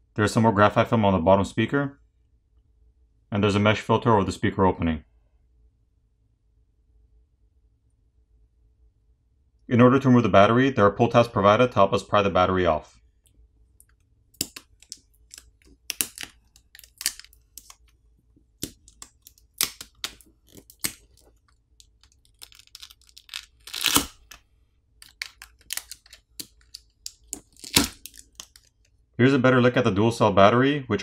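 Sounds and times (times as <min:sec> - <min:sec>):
adhesive crackling and clicking: 0:13.8 - 0:24.4, 0:25.0 - 0:28.9
adhesive tearing: 0:14.4 - 0:24.4, 0:25.0 - 0:28.8
sharp cracks: 0:22.0 - 0:24.4, 0:25.0 - 0:28.7.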